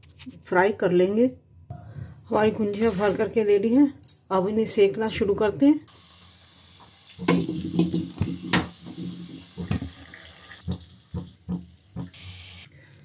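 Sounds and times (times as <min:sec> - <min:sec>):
food sizzling in hot oil: 0:05.9 - 0:12.7
metal spoon knocking pan: 0:07.2 - 0:09.9.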